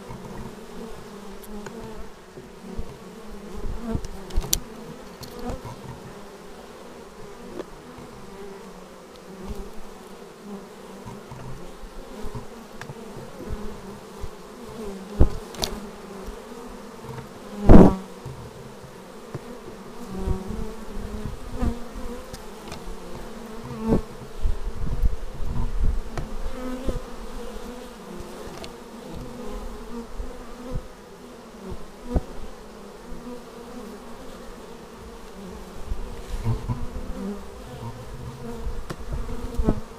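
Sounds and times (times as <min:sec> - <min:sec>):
bee flying past close: 0:00.0 - 0:39.9
bees humming: 0:00.0 - 0:39.9.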